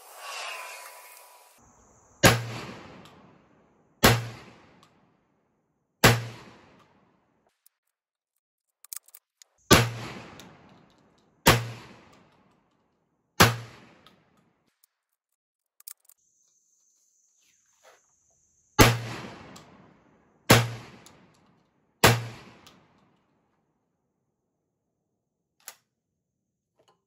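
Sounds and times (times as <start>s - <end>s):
shotgun shots: 2.2s - 3.3s, 4.0s - 4.8s, 6.0s - 6.8s, 9.7s - 10.7s, 11.4s - 12.1s, 13.4s - 14.0s, 18.8s - 19.8s, 20.5s - 21.3s, 22.0s - 22.9s.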